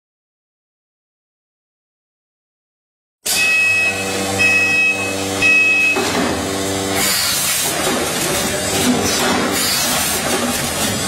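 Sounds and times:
short high beeps: 0:03.3 - 0:06.1
packing machine humming: 0:03.3 - 0:11.0
pneumatic gripper clicks: 0:08.8 - 0:11.0.

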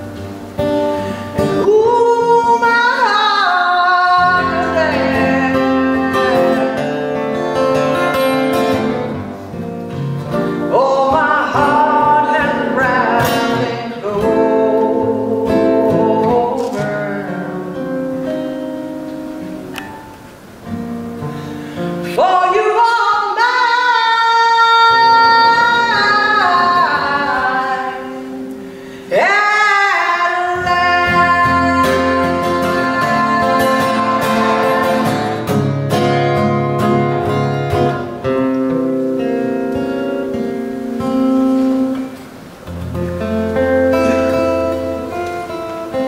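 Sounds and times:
strummed acoustic guitar: 0:00.0 - 0:46.0
woman singing a slow ballad: 0:00.6 - 0:07.7, 0:10.4 - 0:18.5, 0:21.8 - 0:38.0.

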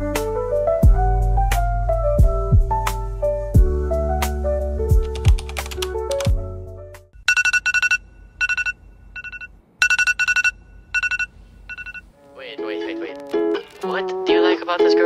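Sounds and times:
background music with piano: 0:00.0 - 0:07.1, 0:12.3 - 0:15.0.

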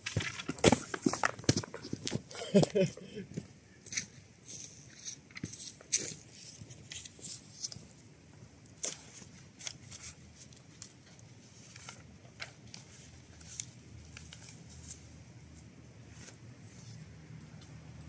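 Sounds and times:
paper rustling: 0:08.8 - 0:16.9.

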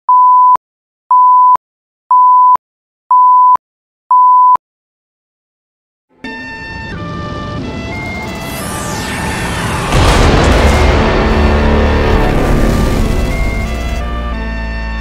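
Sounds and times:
single-pitch beeps: 0:00.1 - 0:04.6
music: 0:06.1 - 0:15.0.

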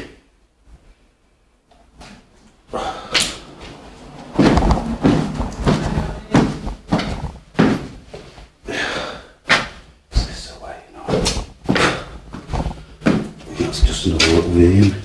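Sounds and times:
footsteps on staircase: 0:03.2 - 0:08.6, 0:11.0 - 0:15.0.

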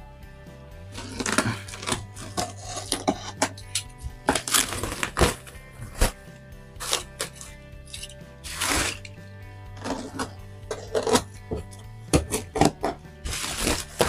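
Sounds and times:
background music: 0:00.0 - 0:14.0
bubble wrap crackling: 0:01.0 - 0:02.7, 0:04.2 - 0:06.2, 0:06.8 - 0:07.5, 0:08.5 - 0:09.1, 0:13.3 - 0:14.0
knife slicing packing: 0:01.0 - 0:06.2, 0:06.8 - 0:09.1, 0:09.8 - 0:11.4, 0:12.2 - 0:14.0.

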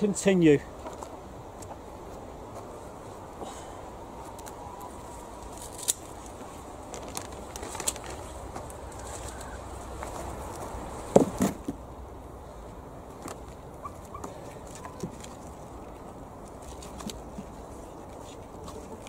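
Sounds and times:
birds: 0:02.6 - 0:06.4, 0:07.2 - 0:11.2, 0:12.5 - 0:19.0
heavy bumps: 0:09.9 - 0:11.9.

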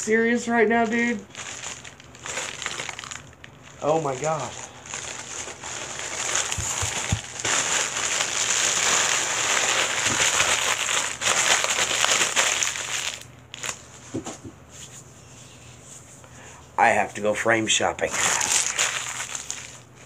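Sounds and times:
plastic packaging crinkling: 0:00.8 - 0:14.2, 0:18.1 - 0:20.0.

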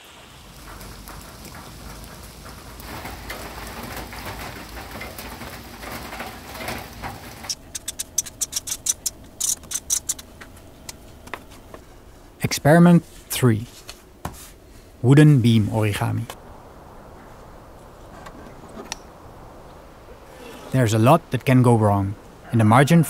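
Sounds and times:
rain pattering: 0:00.0 - 0:22.6
marker scratching on paper: 0:07.8 - 0:10.2.

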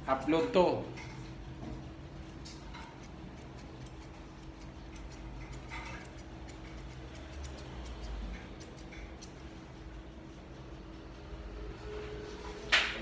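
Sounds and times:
scissors snipping fur: 0:02.2 - 0:09.6.

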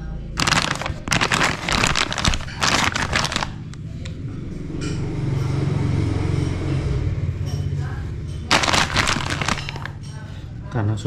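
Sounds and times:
plastic packaging crinkling: 0:00.4 - 0:03.7, 0:08.5 - 0:10.0.

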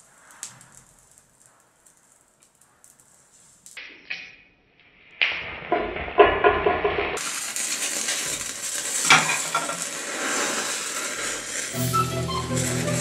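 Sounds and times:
hiss of burning matches: 0:00.0 - 0:03.8, 0:07.2 - 0:13.0
match heads flaring: 0:00.0 - 0:03.8, 0:07.2 - 0:13.0
crackling and fizzing matches: 0:00.0 - 0:05.9, 0:06.8 - 0:13.0.

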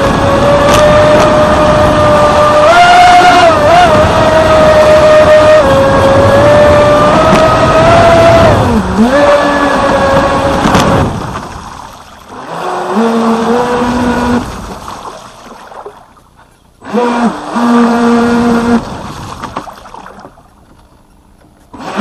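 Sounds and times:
water rushing: 0:07.1 - 0:20.8
electric motor whining: 0:12.3 - 0:14.6, 0:16.8 - 0:18.8.

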